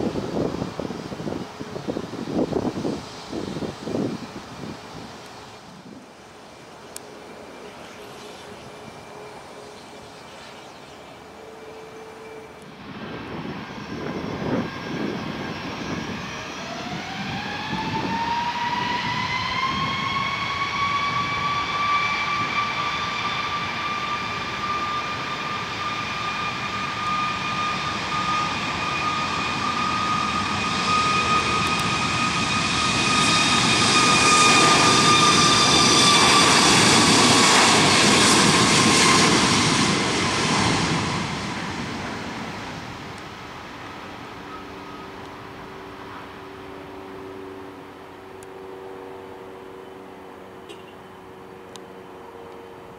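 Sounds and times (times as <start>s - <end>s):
rushing jet noise: 0.0s - 6.6s, 12.6s - 47.8s
jet engines spooling up: 0.0s - 50.5s.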